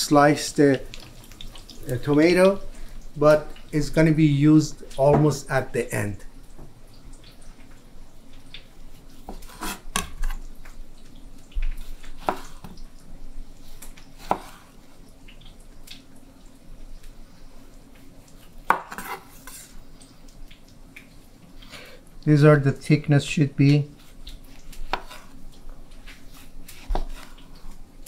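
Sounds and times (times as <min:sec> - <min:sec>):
knife slicing onto cutting board: 0:09.3 - 0:10.4, 0:18.7 - 0:19.6.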